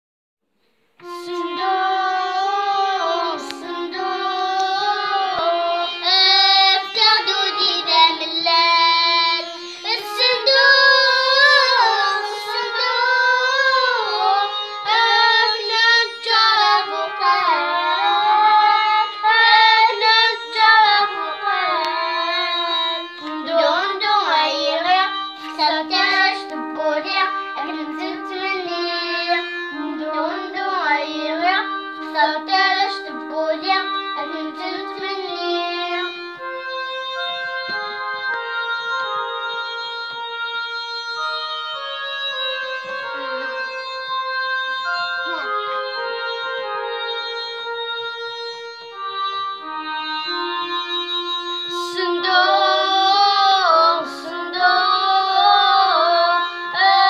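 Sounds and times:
girl singing ornamented melody: 1.0s - 40.8s, 41.8s - 47.9s, 49.2s - 57.0s
electronic keyboard held notes: 1.0s - 57.0s.

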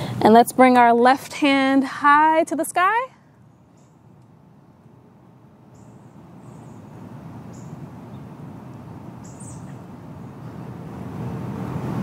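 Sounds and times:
street traffic rumble: 0.0s - 12.0s
high bird chirps: 7.5s - 8.3s, 9.2s - 9.8s.

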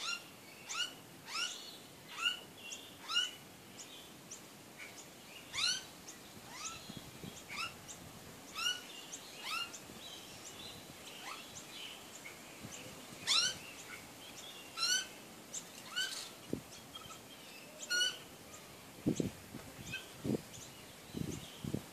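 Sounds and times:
magpies squawking: 0.0s - 3.4s, 4.8s - 5.9s, 6.5s - 6.8s, 8.5s - 9.8s, 13.2s - 14.1s, 14.7s - 15.1s, 15.8s - 16.4s, 17.8s - 18.3s.

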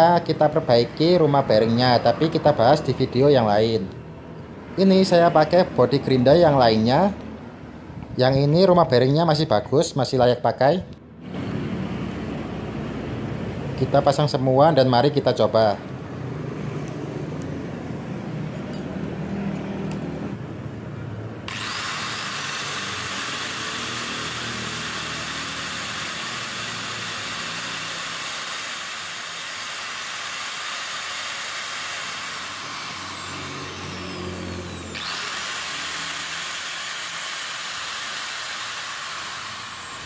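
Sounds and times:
angle grinder running: 21.5s - 40.0s.

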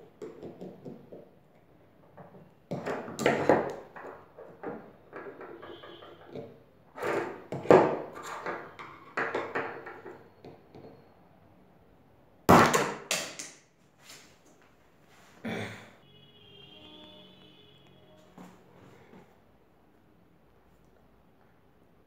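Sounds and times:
knocks and clatter on wooden table: 2.1s - 10.9s.

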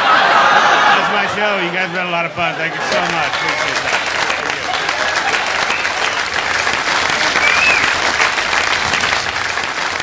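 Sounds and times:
audience applauding: 2.6s - 10.0s.

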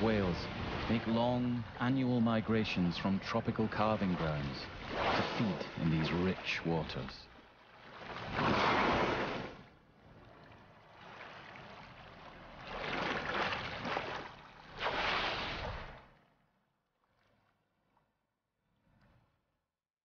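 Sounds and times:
sea wash: 0.0s - 18.1s
whale spout rush of water: 8.0s - 9.7s, 11.0s - 16.1s.

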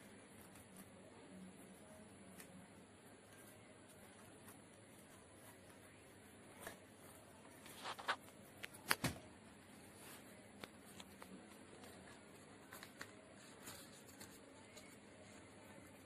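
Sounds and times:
paper rustling and crinkling: 6.5s - 9.2s, 9.9s - 16.0s.

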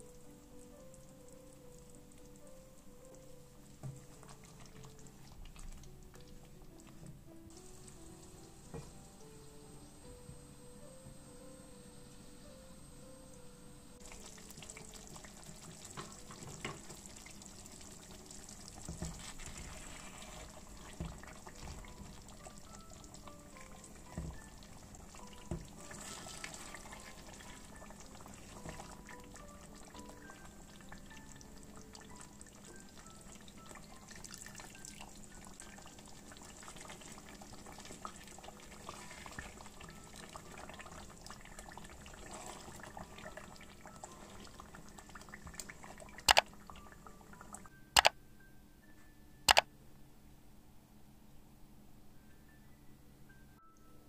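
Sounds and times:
soft background music: 0.0s - 54.0s
stew bubbling in a pan: 3.2s - 9.0s, 14.0s - 47.6s
mouse-click sound effects: 46.3s - 46.5s, 48.0s - 48.2s, 49.5s - 49.7s.

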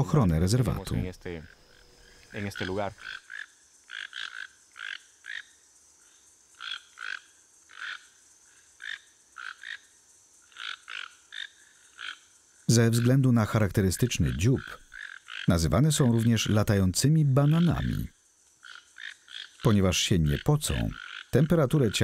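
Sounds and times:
toucans croaky calls: 0.0s - 5.6s, 10.5s - 22.0s.

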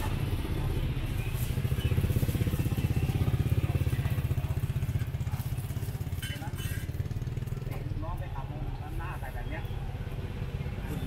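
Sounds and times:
small engine running: 0.0s - 8.5s.

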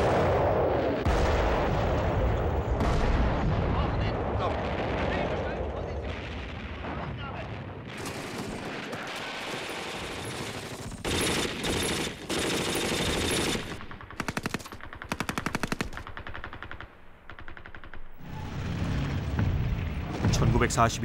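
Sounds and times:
machine-gun fire: 7.9s - 18.2s.

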